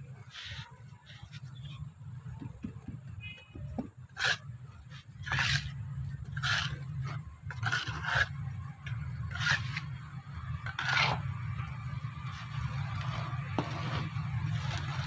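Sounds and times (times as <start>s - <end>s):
trowel scraping wet cement: 3.8s - 10.0s, 10.6s - 11.3s, 12.2s - 15.0s.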